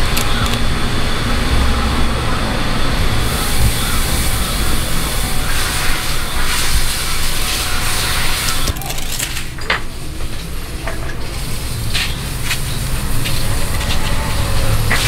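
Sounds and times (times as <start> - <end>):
low rumble: 0.0 - 15.0
tape crackling: 3.4 - 15.0
adhesive tape rasping: 6.5 - 9.6.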